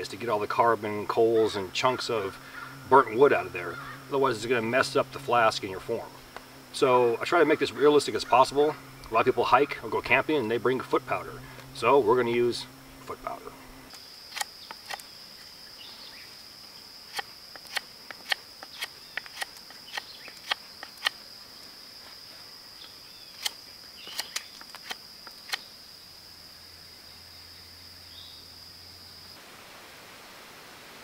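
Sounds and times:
insect buzzing: 0.0s - 31.0s
knife cutting wooden stick: 17.1s - 21.2s.

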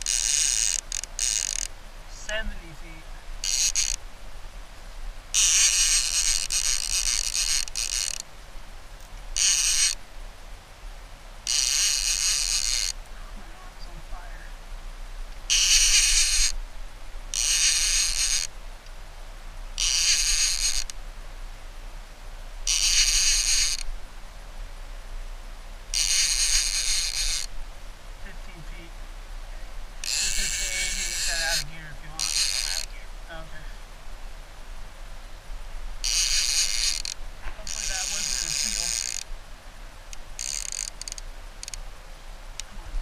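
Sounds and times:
fishing reel buzzing and ratcheting: 0.0s - 1.7s, 3.4s - 4.0s, 5.3s - 8.3s, 9.4s - 10.0s, 11.4s - 13.0s, 15.5s - 16.6s, 17.3s - 18.5s, 19.8s - 21.0s, 22.7s - 23.9s, 25.9s - 27.5s, 30.0s - 33.0s, 36.0s - 39.3s, 40.1s - 41.8s.

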